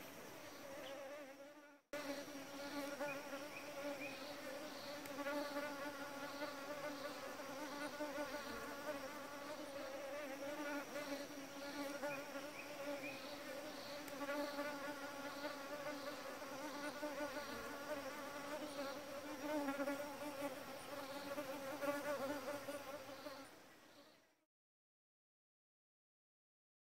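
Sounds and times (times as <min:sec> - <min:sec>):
flying insect buzzing: 0:00.0 - 0:24.3.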